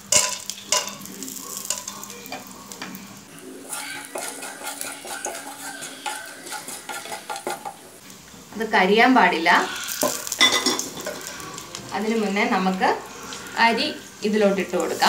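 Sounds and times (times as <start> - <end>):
spices sizzling in hot oil: 0.0 - 15.0
spatula scraping pan: 0.1 - 8.0, 9.4 - 14.0.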